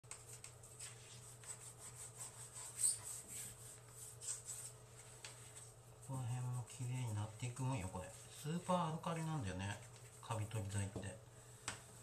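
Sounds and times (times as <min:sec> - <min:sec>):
wipe scuffing plastic bathtub: 0:00.3 - 0:06.2.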